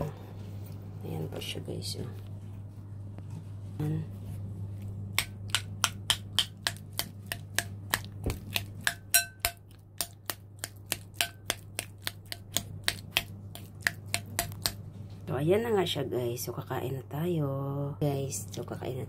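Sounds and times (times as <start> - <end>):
utensil tapping ceramic plate: 5.2 - 14.8.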